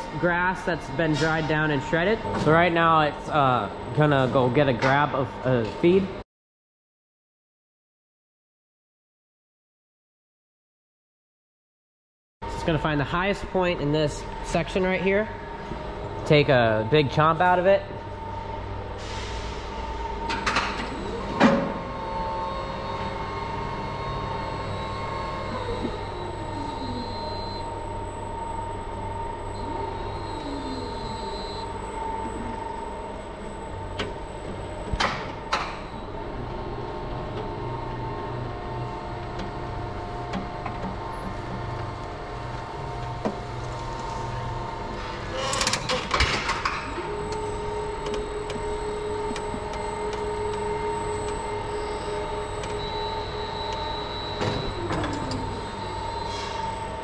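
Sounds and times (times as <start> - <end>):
electric motors whining and humming: 14.2 - 57.0.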